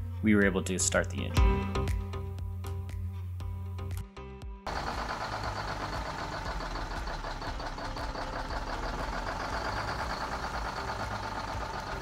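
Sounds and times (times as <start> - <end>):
diesel engine clattering: 4.7 - 12.0
high engine whine: 4.7 - 12.0.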